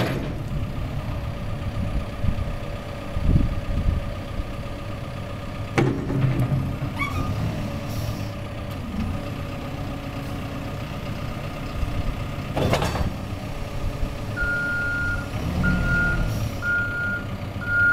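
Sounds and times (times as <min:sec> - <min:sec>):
backhoe diesel engine running: 0:00.0 - 0:17.9
reversing alarm beeping: 0:14.4 - 0:17.9.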